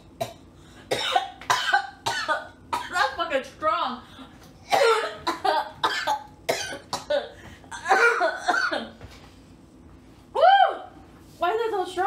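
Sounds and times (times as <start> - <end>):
woman coughing: 0.2 - 3.2, 4.6 - 9.0.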